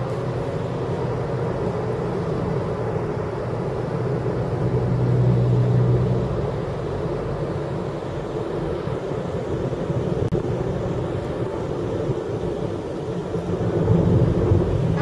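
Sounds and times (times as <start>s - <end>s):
car engine and road noise: 0.0s - 15.0s
low hum: 9.5s - 15.0s.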